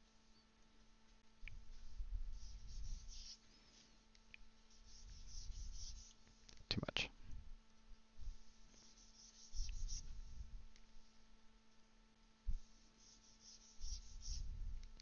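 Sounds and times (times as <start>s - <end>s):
stylus scratching on drawing tablet: 1.8s - 3.5s, 4.7s - 6.3s, 8.3s - 10.3s, 12.6s - 14.5s.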